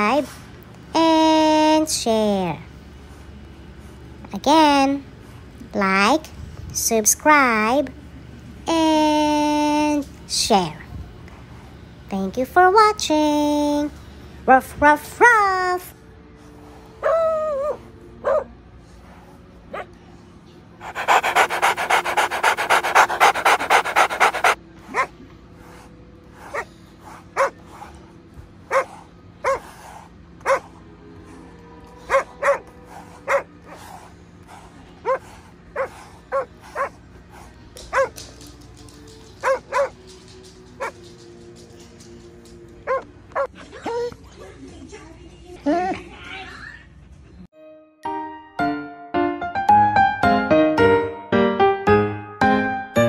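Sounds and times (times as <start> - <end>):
dog panting rapidly: 20.8 - 24.6, 25.6 - 28.1, 28.7 - 30.7, 32.1 - 38.4, 39.2 - 40.0.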